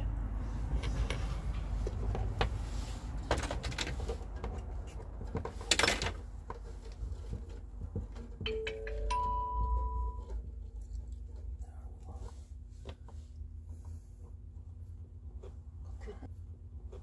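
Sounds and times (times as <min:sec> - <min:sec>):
short steady tone: 0:08.5 - 0:10.4.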